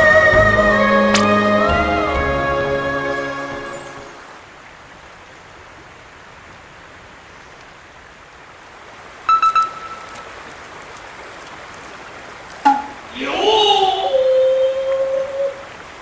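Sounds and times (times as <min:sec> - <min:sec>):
river running over stones: 0:04.0 - 0:16.0
high two-note beep: 0:09.3 - 0:10.1, 0:12.7 - 0:13.0
brief lower tone: 0:09.3 - 0:10.2.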